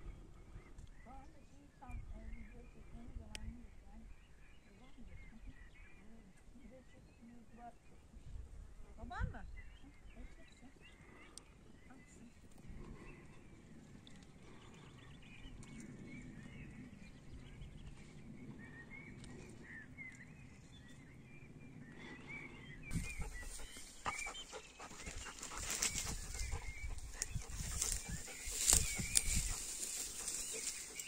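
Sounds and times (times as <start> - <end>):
small birds chirping: 0.1 - 31.0
wind rushing over microphone: 22.8 - 24.3, 24.9 - 30.9.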